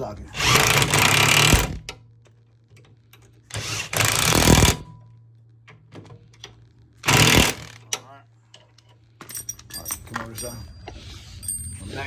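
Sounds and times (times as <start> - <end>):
impact wrench hammering: 7.0 - 7.8.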